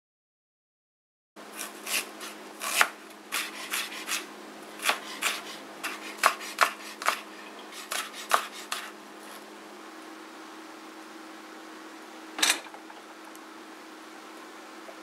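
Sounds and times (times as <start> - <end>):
knife chopping on cutting board: 1.6 - 9.0.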